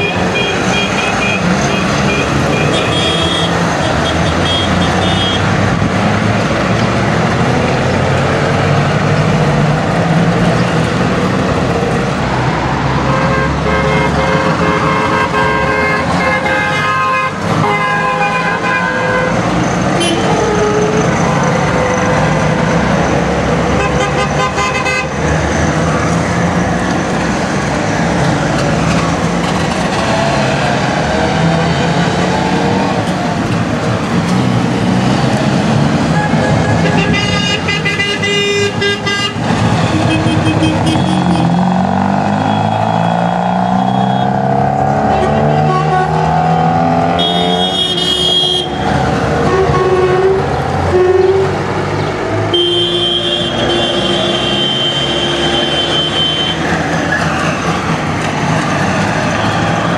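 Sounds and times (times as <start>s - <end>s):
car horns tooting: 0.0s - 5.5s, 13.0s - 22.8s, 23.7s - 25.2s, 36.1s - 51.6s, 52.4s - 57.6s.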